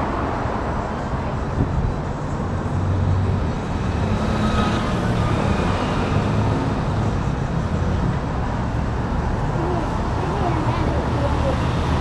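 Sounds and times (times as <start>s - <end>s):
motorbike engines: 0.0s - 12.0s
passing cars: 0.0s - 12.0s.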